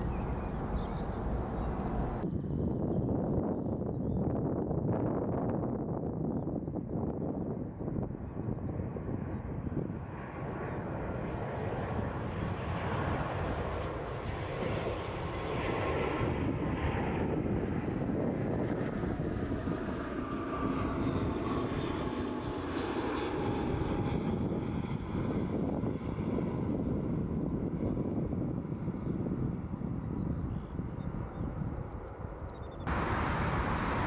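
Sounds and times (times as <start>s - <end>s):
distant jet engine rumble: 0.0s - 34.0s.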